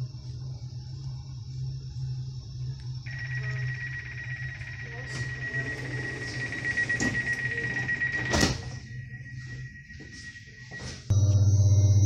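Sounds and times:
low train hum: 0:00.0 - 0:12.0
sliding doors closing: 0:05.1 - 0:08.8.

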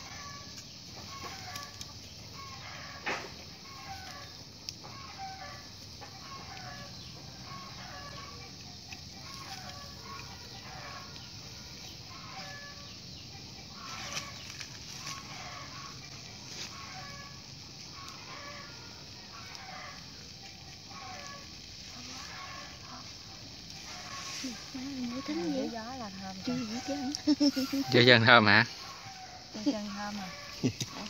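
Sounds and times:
chickens clucking: 0:00.0 - 0:31.0
steady background hiss: 0:00.0 - 0:31.0.

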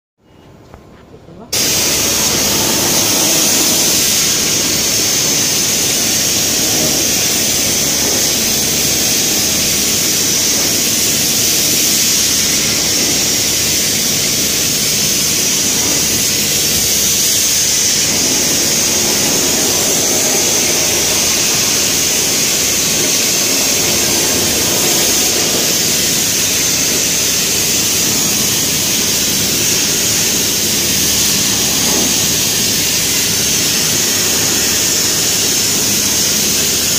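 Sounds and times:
sandblasting hiss: 0:01.5 - 0:36.9.

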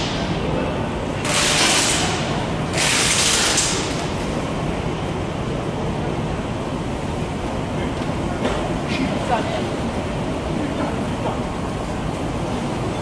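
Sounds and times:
low workshop rumble: 0:00.0 - 0:13.0.

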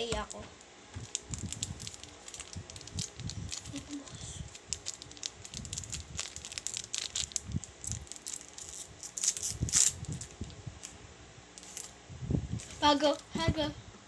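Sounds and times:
wrapper crinkling and rustling: 0:01.0 - 0:10.9, 0:11.6 - 0:11.9.

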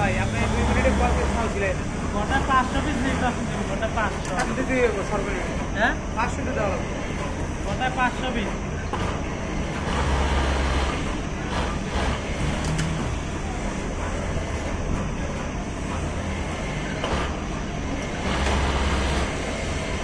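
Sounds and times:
hum of factory machines: 0:00.0 - 0:20.0
industrial sewing machine running: 0:00.0 - 0:20.0.

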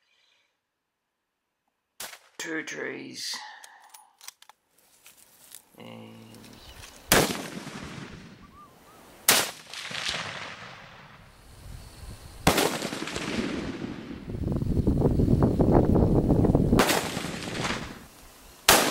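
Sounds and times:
rifle shots: 0:07.1 - 0:08.4, 0:09.3 - 0:11.1, 0:12.4 - 0:14.2, 0:16.8 - 0:18.0, 0:18.7 - 0:18.9
rolling echo of gunshots: 0:07.1 - 0:08.4, 0:09.3 - 0:11.2, 0:12.4 - 0:14.3, 0:16.8 - 0:18.0, 0:18.7 - 0:18.9.

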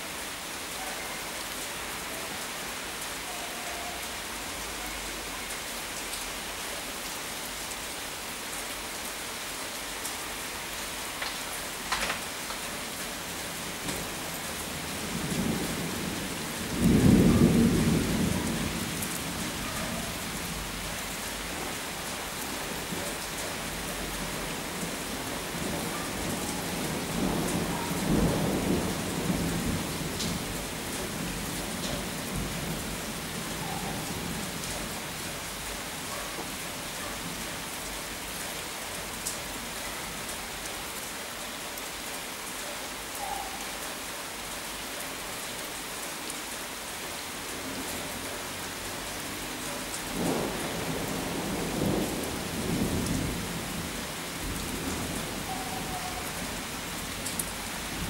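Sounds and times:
steady rain: 0:00.0 - 0:58.0
thunder rumbling: 0:15.1 - 0:20.8, 0:25.0 - 0:31.5.

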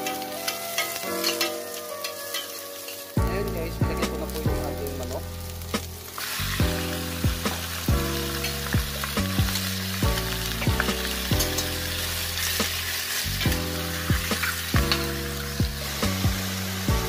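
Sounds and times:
metal spoon clinking against pot: 0:00.0 - 0:03.0
background music with steady beat: 0:00.0 - 0:17.0
chicken sizzling in hot oil: 0:00.0 - 0:17.0.

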